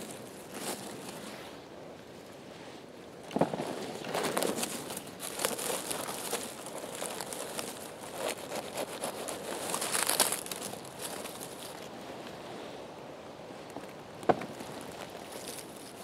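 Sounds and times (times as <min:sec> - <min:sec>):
pine needles and twigs crackling: 0:00.0 - 0:01.6, 0:03.2 - 0:12.4, 0:13.5 - 0:16.0.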